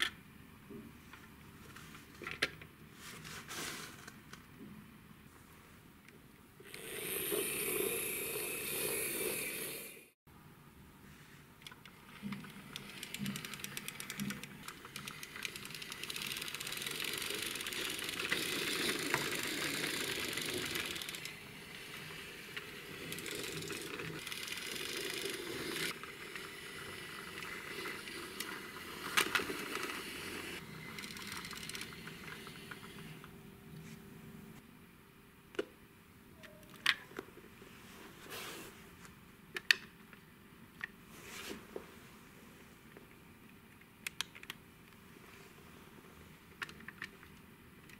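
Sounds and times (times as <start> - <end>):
toy truck wheels rolling on wood: 6.7 - 10.0, 12.1 - 33.1.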